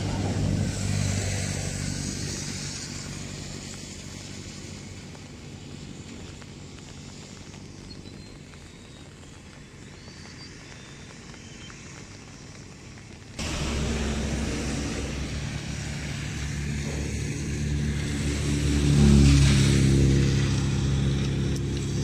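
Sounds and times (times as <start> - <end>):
vehicle engine passing: 0.0 - 4.6, 13.4 - 22.0.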